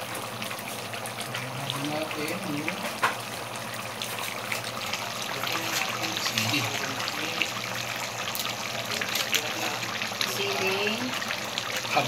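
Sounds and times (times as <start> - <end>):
sauce bubbling and popping: 0.0 - 12.0.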